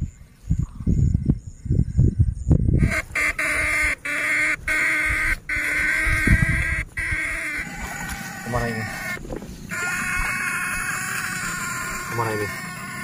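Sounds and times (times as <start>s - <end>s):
electric fish shocker buzzing: 4.1s - 13.0s.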